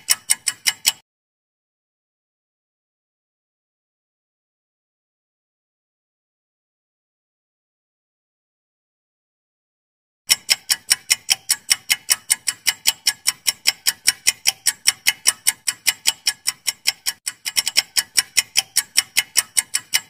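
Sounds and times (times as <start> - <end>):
clock ticking: 0.0 - 1.0, 10.3 - 20.0.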